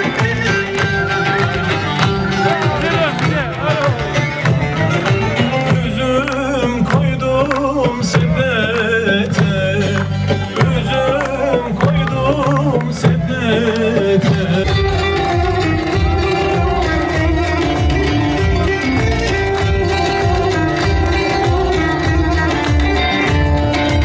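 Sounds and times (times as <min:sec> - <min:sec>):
crowd clapping along: 0:00.0 - 0:24.0
folk song with instruments: 0:00.0 - 0:24.0.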